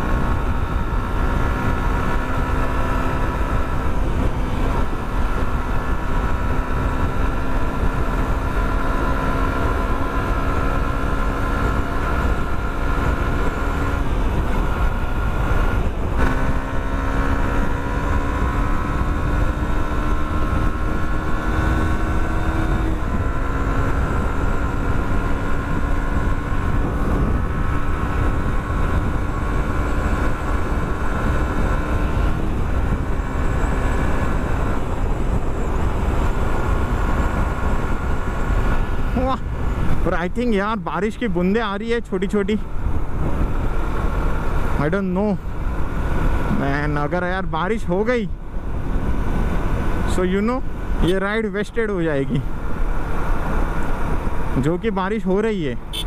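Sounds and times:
motorcycle engine running: 0:00.0 - 0:56.0
wind rushing on microphone: 0:00.0 - 0:56.0.

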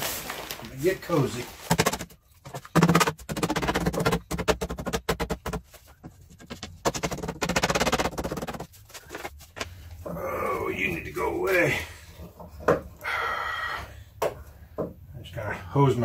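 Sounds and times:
rubber mallet knocking on wood: 0:01.7 - 0:08.7.

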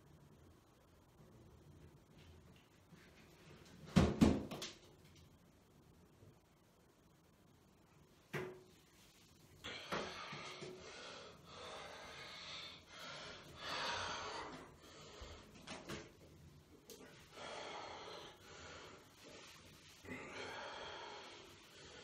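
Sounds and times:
person breathing hard: 0:09.6 - 0:15.7, 0:17.0 - 0:22.0.

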